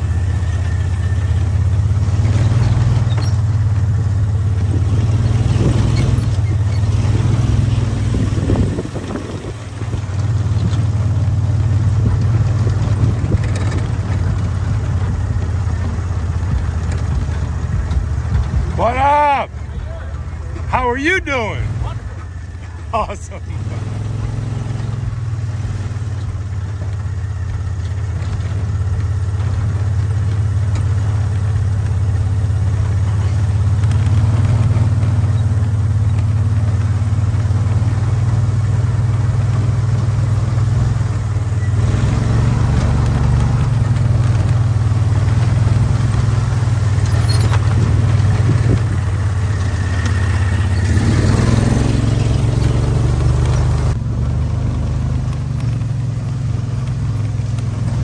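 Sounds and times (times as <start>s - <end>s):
vehicle engine low drone: 0.0s - 58.0s.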